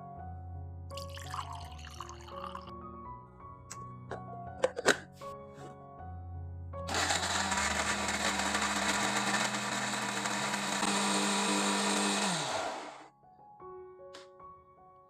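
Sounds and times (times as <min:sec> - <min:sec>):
soft background music: 0:00.0 - 0:06.9, 0:13.1 - 0:15.0
electric blender grinding: 0:06.9 - 0:13.1.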